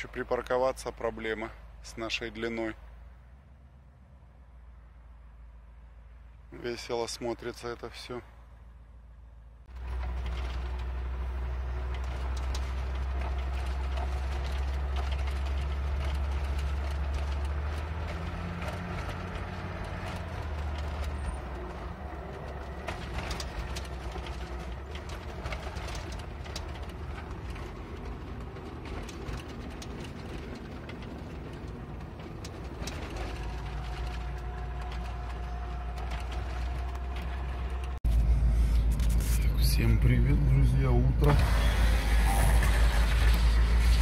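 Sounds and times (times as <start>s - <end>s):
car engine and road rumble: 0.0s - 44.0s
clicks and rattles in car: 9.7s - 38.2s.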